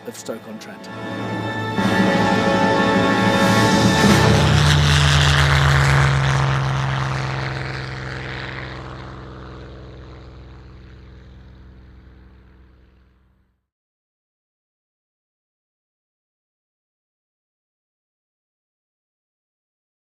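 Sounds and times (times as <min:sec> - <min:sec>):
propeller aircraft engine: 0:00.0 - 0:13.6.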